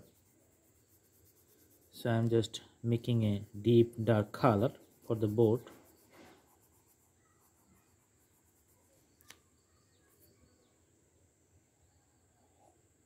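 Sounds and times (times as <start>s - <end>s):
faint click: 9.2s - 9.5s.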